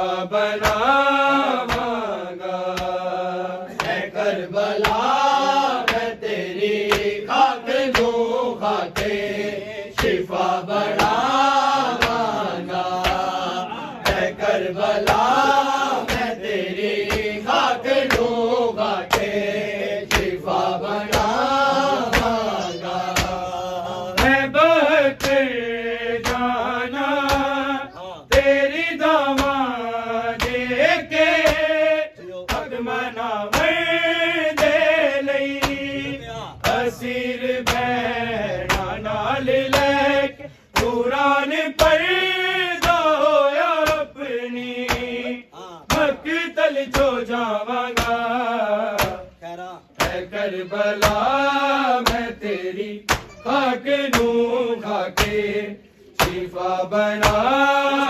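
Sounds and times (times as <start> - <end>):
male voices chanting a lament: 0.0 - 58.0
rhythmic chest-beating slaps: 0.0 - 58.0.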